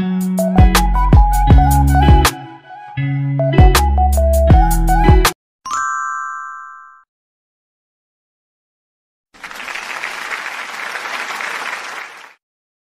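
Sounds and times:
recorded applause: 9.4 - 12.4.

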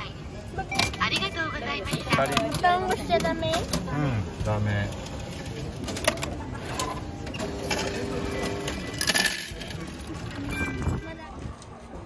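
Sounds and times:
ticket machine whirring: 4.5 - 11.0
coins clinking: 4.8 - 11.0.

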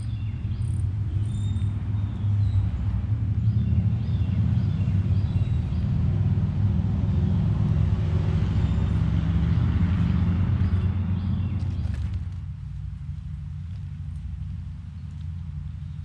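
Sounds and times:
chipmunk crunching and rustling: 11.6 - 16.0.

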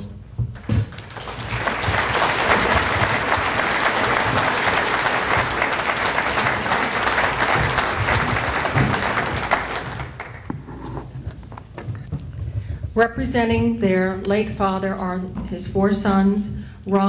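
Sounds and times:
audience applauding: 0.9 - 10.7.

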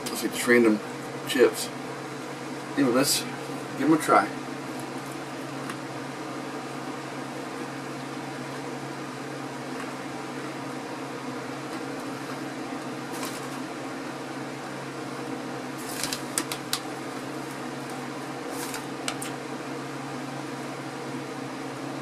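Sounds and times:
electric fan humming: 0.0 - 22.0
foil bag crinkling: 15.8 - 18.9.

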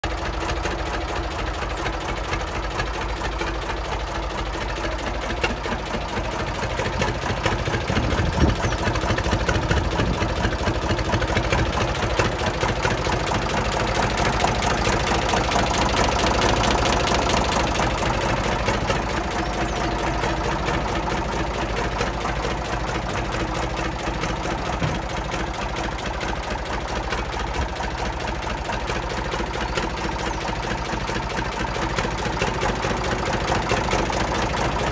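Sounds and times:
tractor diesel engine idling: 0.0 - 34.9
brief thump: 24.8 - 25.1.

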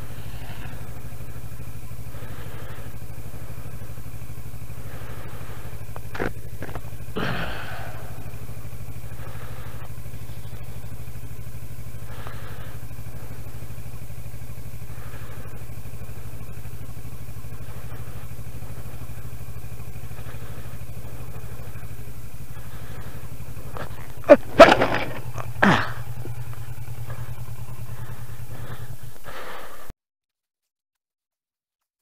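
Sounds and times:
motorcycle engine running: 0.0 - 29.9
motorcycle falling knocks and thuds: 23.7 - 27.2.

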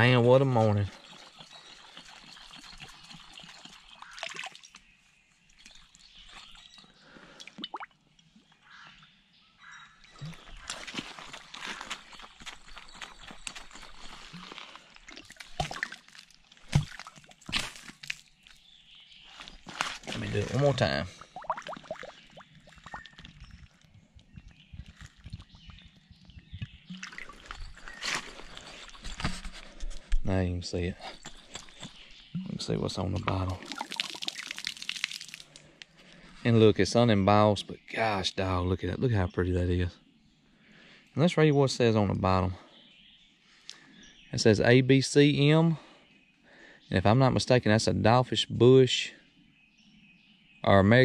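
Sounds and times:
water dripping and plopping: 0.0 - 4.9, 7.4 - 8.0, 10.1 - 12.6, 13.4 - 18.6, 20.1 - 27.9, 31.6 - 35.9
bottle gurgling as it fills: 7.4 - 7.9, 20.1 - 23.3, 32.4 - 35.5
boot splashing through water: 10.2 - 18.3
water splash: 15.1 - 18.2, 20.1 - 23.3, 32.4 - 35.6.

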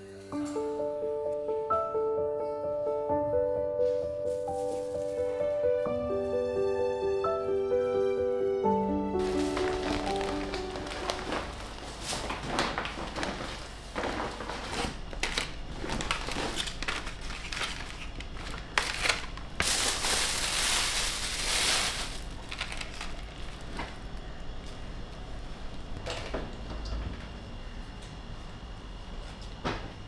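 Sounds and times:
plastic bags rustling: 4.2 - 5.7, 9.0 - 24.1.

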